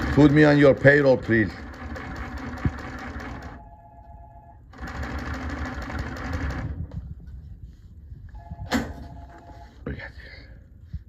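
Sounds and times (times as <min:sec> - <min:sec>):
sewing machine stitching: 0:00.0 - 0:03.6, 0:04.7 - 0:06.8.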